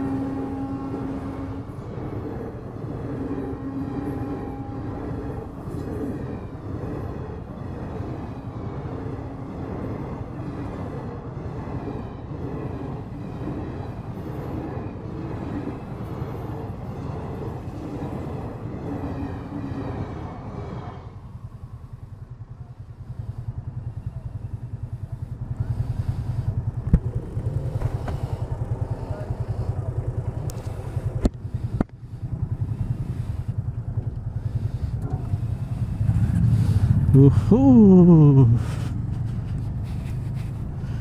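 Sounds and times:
train rumbling clatter: 0.0 - 41.0
motorcycle engine idling: 21.4 - 41.0.

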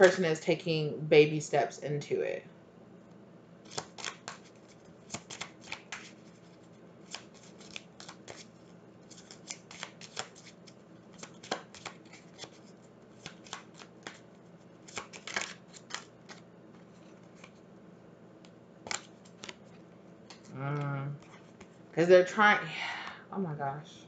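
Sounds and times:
cards being shuffled: 3.7 - 17.6, 18.8 - 21.8.

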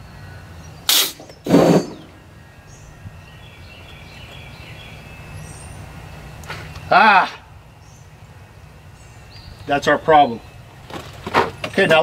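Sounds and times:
compressed air blasts: 0.8 - 2.2.

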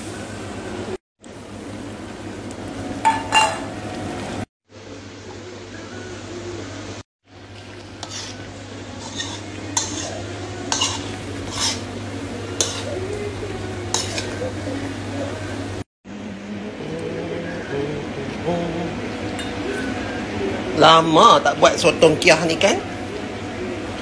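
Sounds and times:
faint sizzle: 0.0 - 24.0
steady low hum: 4.8 - 24.0
spatula scraping metal wok: 8.0 - 13.0, 13.9 - 14.6.

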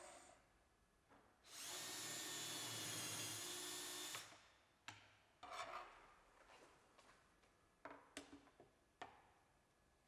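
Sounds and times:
cordless drill boring: 1.5 - 4.3.

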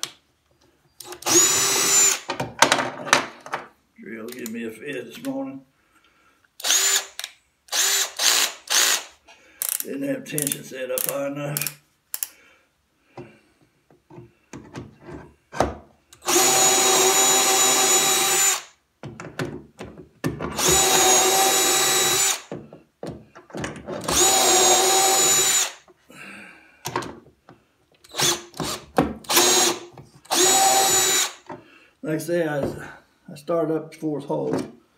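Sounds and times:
cordless drill boring: 1.0 - 2.3, 6.6 - 9.8, 16.2 - 18.8, 20.5 - 22.5, 24.0 - 25.9, 28.0 - 31.5.

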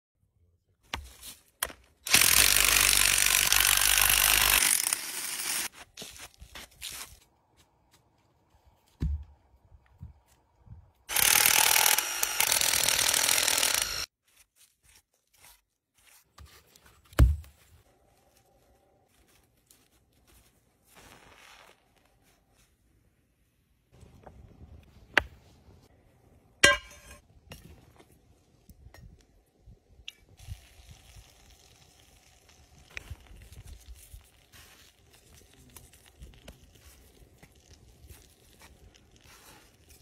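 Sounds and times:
power drill boring into wood: 2.1 - 5.7, 11.1 - 14.1.

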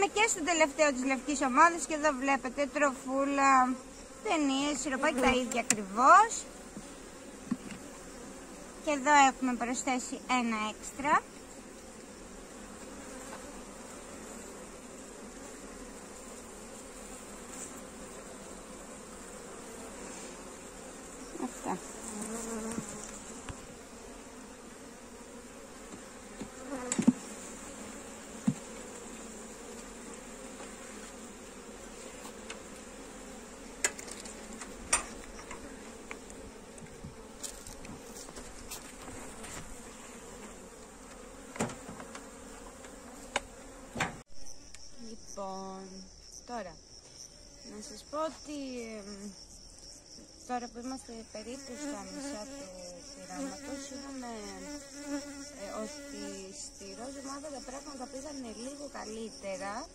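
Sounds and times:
bees buzzing: 0.0 - 46.4, 47.1 - 59.9
hive tool knocking wooden frames: 6.7 - 7.9, 25.8 - 27.4, 28.3 - 29.0, 40.4 - 44.2.

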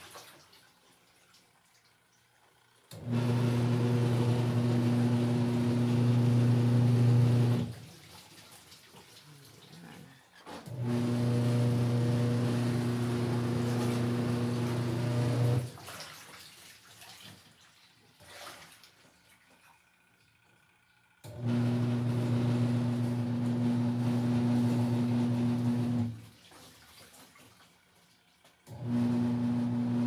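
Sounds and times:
washing machine motor humming: 2.4 - 8.2, 9.3 - 16.0, 19.8 - 26.5, 27.7 - 30.0
faint water movement: 7.8 - 10.7, 15.7 - 20.4.

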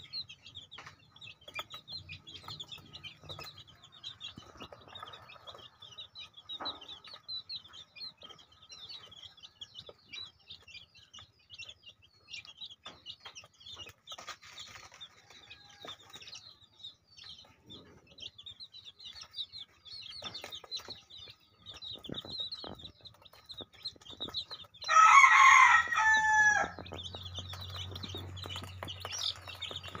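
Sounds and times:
chicks peeping: 0.0 - 30.0
rooster crowing: 24.8 - 26.9.

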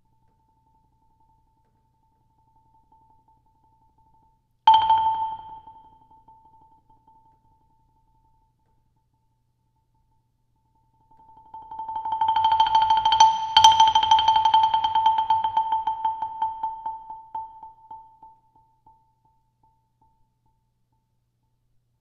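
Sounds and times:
marimba roll: 4.7 - 5.9, 11.5 - 18.0.

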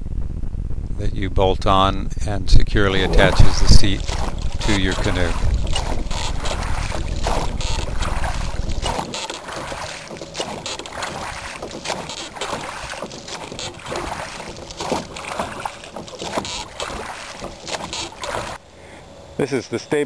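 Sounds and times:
oars knocking: 2.9 - 18.6
oars splashing in water: 2.9 - 18.6.

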